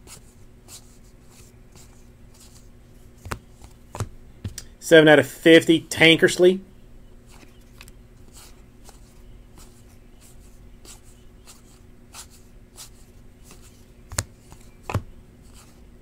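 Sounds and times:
cards being flipped: 0:00.8 - 0:04.7, 0:07.3 - 0:10.3, 0:10.9 - 0:15.8.

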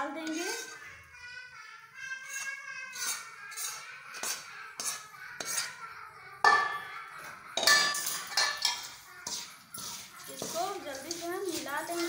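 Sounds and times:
metal spoon scraping a steel pan: 0:00.0 - 0:00.9, 0:02.1 - 0:05.8, 0:07.6 - 0:12.0.

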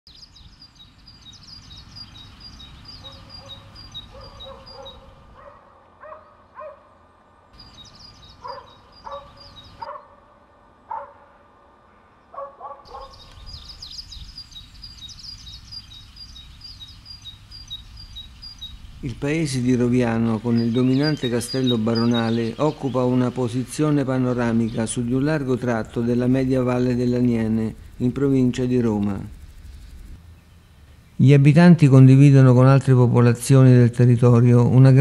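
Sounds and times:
birds chirping: 0:00.1 - 0:35.0
dog barking: 0:03.0 - 0:07.0, 0:08.4 - 0:11.4, 0:12.3 - 0:13.2
low background rumble: 0:13.0 - 0:32.2.

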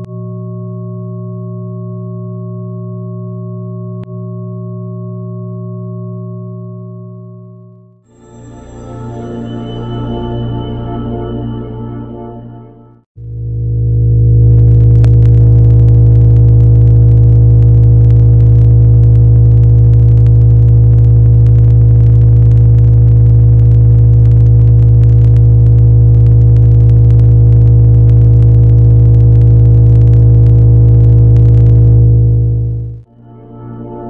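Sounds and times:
synthesized low drone: 0:08.1 - 0:34.0.

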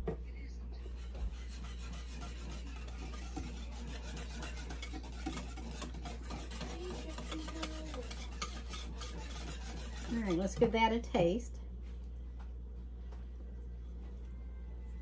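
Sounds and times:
whisk scraping a bowl: 0:00.8 - 0:11.3.

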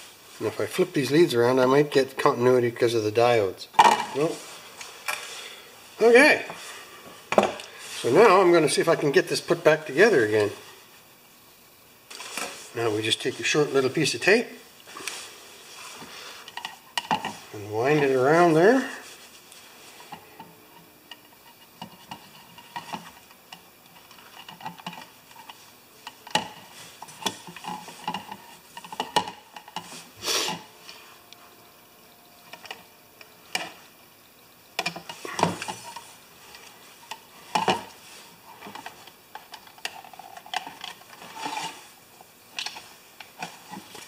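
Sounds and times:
scrapes and handling knocks: 0:12.1 - 0:30.6, 0:34.8 - 0:41.9.

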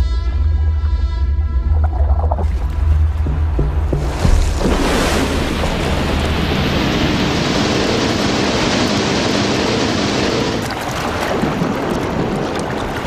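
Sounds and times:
whale blowing: 0:00.1 - 0:03.0
rough sea: 0:01.5 - 0:13.0.

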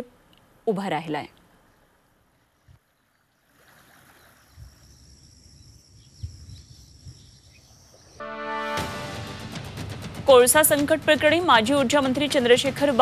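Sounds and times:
insects buzzing: 0:02.6 - 0:08.3.

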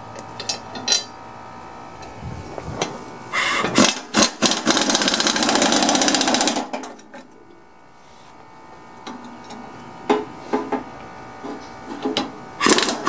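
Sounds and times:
pneumatic impact wrench hammering: 0:03.4 - 0:07.0, 0:11.9 - 0:13.0.

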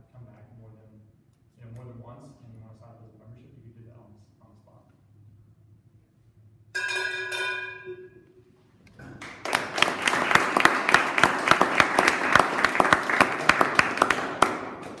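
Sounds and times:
audience clapping: 0:09.0 - 0:15.0.

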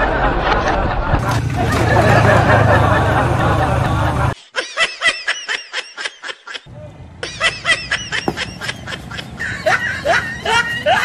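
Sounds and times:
street background: 0:00.0 - 0:04.4, 0:05.8 - 0:11.0
high-pitched giggling: 0:04.5 - 0:11.0.

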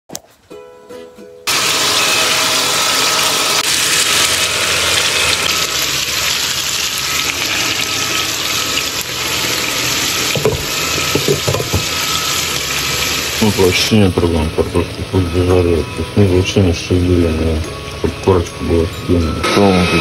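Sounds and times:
potatoes sizzling in hot oil: 0:01.5 - 0:20.0
frying pan knock: 0:10.3 - 0:12.0.

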